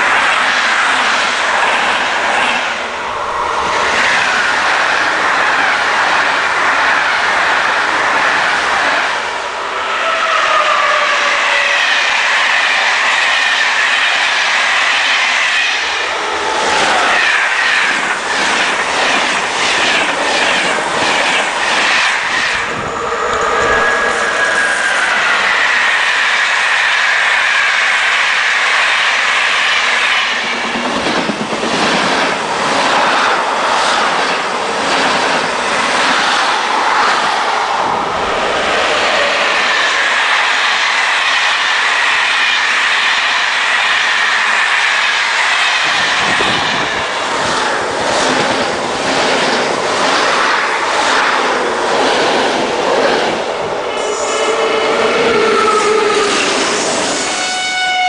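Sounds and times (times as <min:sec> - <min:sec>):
train wheel and rail noise: 0:00.0 - 0:58.0
high steady whine: 0:22.2 - 0:25.6.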